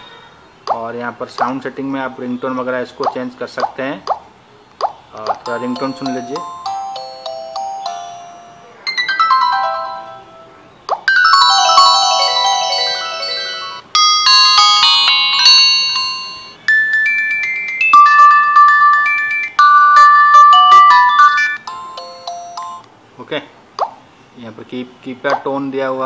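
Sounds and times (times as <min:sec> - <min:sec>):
phone alert tone melodies: 0:05.3 - 0:22.9.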